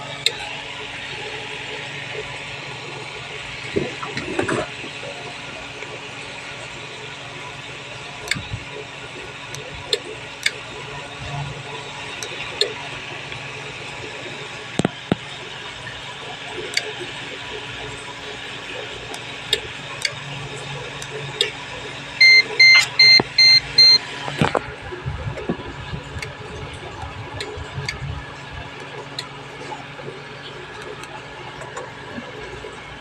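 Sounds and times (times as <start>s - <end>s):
radio keypad beeps: 22.2s - 24.0s.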